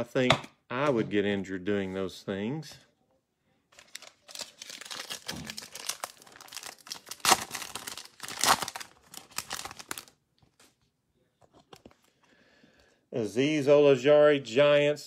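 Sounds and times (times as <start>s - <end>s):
foil pack tearing and crinkling: 3.8s - 10.1s
loud foil rips: 3.8s - 10.1s.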